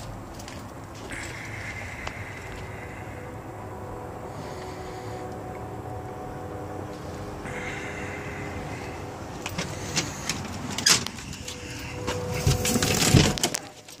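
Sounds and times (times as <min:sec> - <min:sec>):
low hum: 0:00.0 - 0:14.0
door opening: 0:09.4 - 0:14.0.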